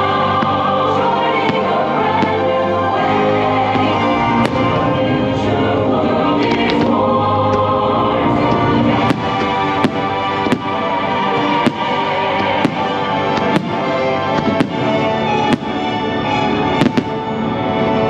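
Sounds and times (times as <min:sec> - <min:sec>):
loud music: 0:00.0 - 0:18.0
fireworks bangs: 0:03.6 - 0:07.7, 0:08.4 - 0:16.0, 0:16.6 - 0:17.4.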